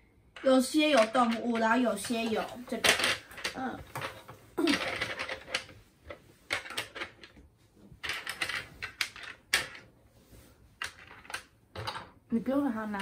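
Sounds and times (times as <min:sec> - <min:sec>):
plastic game pieces clicking: 0:00.4 - 0:05.7, 0:06.5 - 0:07.4, 0:08.0 - 0:09.8, 0:10.8 - 0:12.1.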